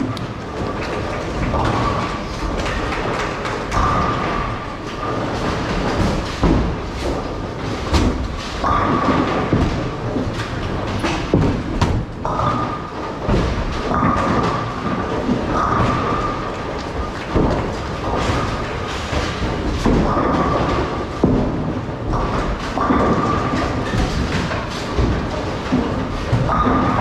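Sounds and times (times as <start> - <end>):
bowling balls rumbling: 0.0 - 27.0
sharp knocks: 0.0 - 27.0.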